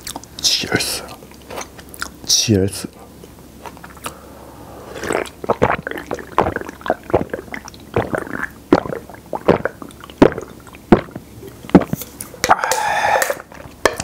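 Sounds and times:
person gulping a drink: 4.9 - 13.6.

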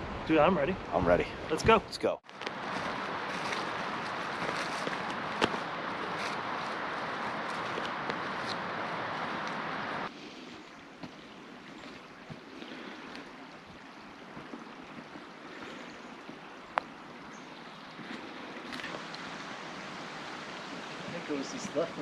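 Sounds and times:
faint steady hiss: 0.0 - 22.0
footsteps in dry leaves: 2.3 - 12.4.

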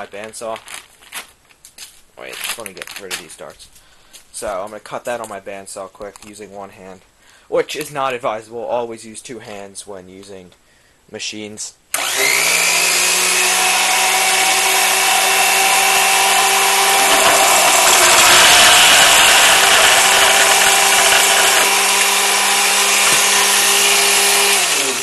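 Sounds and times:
bandsaw blade cutting pipe: 12.0 - 25.0
bandsaw motor running: 12.0 - 25.0.

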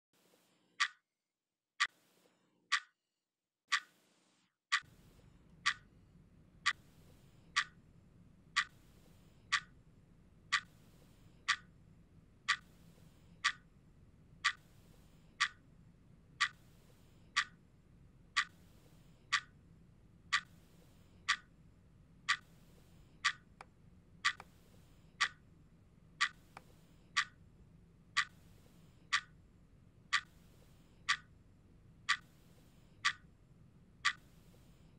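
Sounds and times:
clock ticking: 0.8 - 1.0, 1.8 - 3.0, 3.7 - 4.0, 4.7 - 6.0, 6.6 - 11.8, 12.4 - 13.8, 14.4 - 15.7, 16.3 - 19.6, 20.2 - 21.6, 22.2 - 25.5, 26.1 - 33.4, 34.0 - 34.9.

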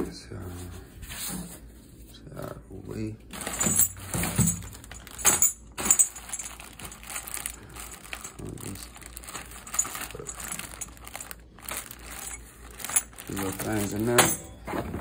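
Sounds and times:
cardboard and plastic bag rustling: 3.3 - 15.0
small metal parts clinking: 3.4 - 14.6.

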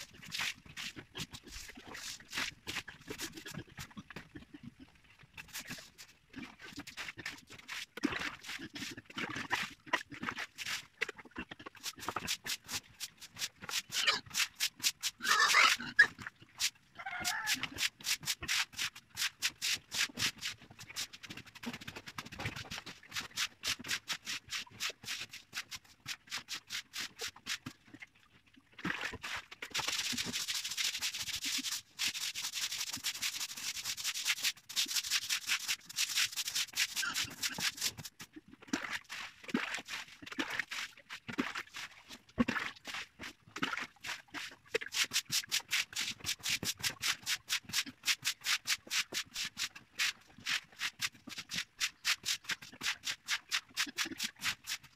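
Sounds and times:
pig squeal: 13.9 - 14.4, 15.2 - 16.2, 17.0 - 17.8.

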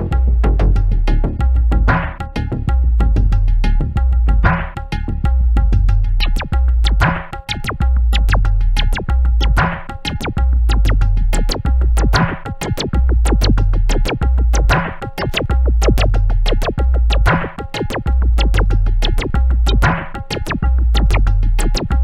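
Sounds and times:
deep synth bass line: 0.0 - 22.0
fast clicking percussion: 6.2 - 22.0.

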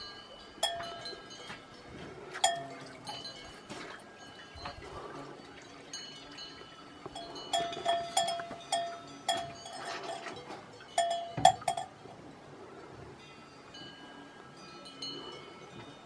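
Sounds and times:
cowbell clanking: 0.0 - 12.2.

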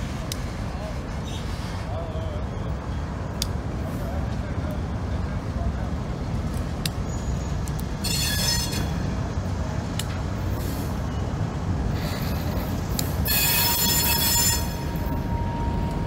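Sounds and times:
low rumble of moving train: 0.0 - 16.0
steel wheels squealing on rail: 7.0 - 9.2, 10.5 - 16.0.

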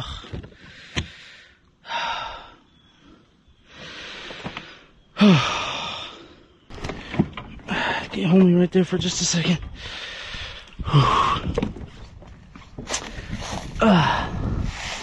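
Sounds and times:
man breathing hard in pain: 0.0 - 6.5, 9.7 - 11.6, 13.1 - 14.7
man groaning: 5.2 - 5.8.

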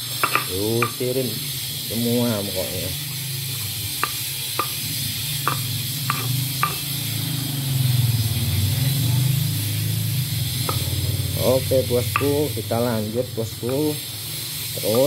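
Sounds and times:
stone pestle grinding: 3.5 - 6.9, 10.6 - 10.9, 12.1 - 12.5
stone-on-stone knocks: 5.5 - 6.8.

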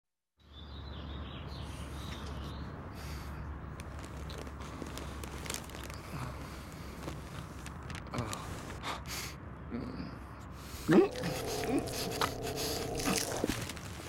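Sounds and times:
soft clicks and rustles: 3.8 - 8.8.

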